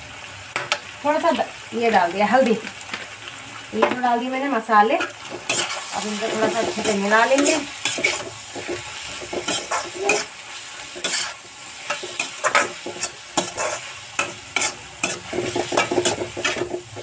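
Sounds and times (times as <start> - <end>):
vegetables frying: 0.0 - 17.0
spatula scraping metal pan: 5.0 - 17.0.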